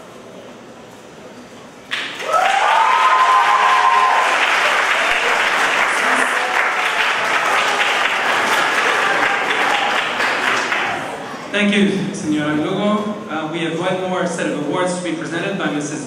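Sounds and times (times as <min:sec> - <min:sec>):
students applauding: 0:01.9 - 0:11.3
person cheering: 0:02.2 - 0:05.3.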